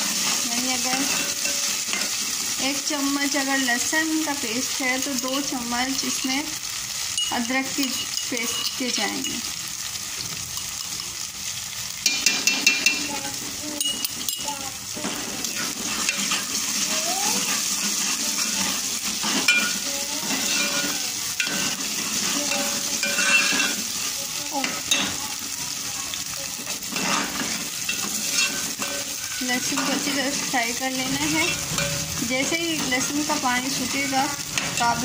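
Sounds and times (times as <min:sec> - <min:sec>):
paste sizzling in hot oil: 0:00.0 - 0:35.0
metal ladle scraping pot: 0:26.8 - 0:35.0.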